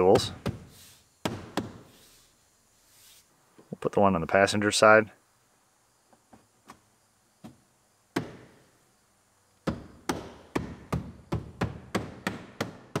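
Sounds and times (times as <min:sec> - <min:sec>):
palm thumping plastic panel: 0:00.0 - 0:01.9, 0:07.4 - 0:08.6, 0:09.6 - 0:13.0
palm smacking plastic panel: 0:09.6 - 0:13.0.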